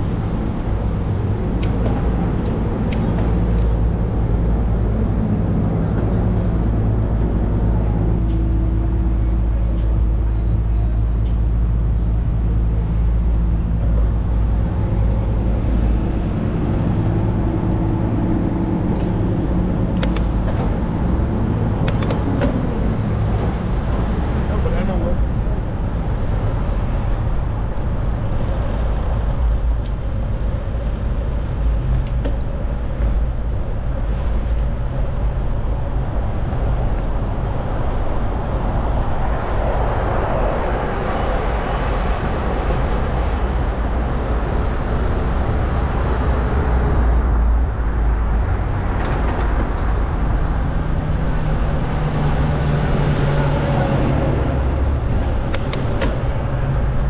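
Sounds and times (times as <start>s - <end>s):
city road traffic rumble: 0.0s - 57.0s
low engine hum: 0.0s - 57.0s
vehicle passing: 36.7s - 57.0s.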